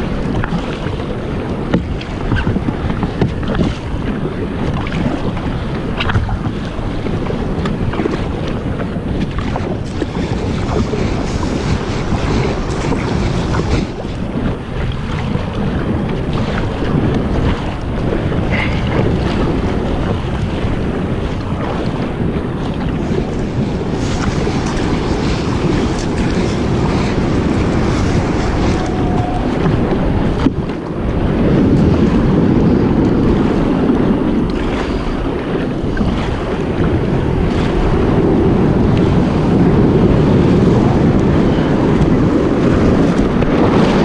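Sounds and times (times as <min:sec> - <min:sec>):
sea waves: 0:00.0 - 0:44.0
water washing around kayak: 0:00.0 - 0:44.0
wind buffeting microphone: 0:00.0 - 0:44.0.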